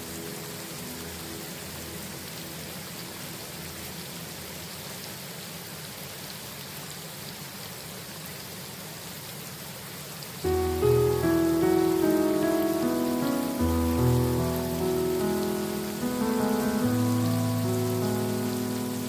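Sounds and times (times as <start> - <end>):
steady rain falling: 0.0 - 19.0
piano chord: 10.4 - 19.0.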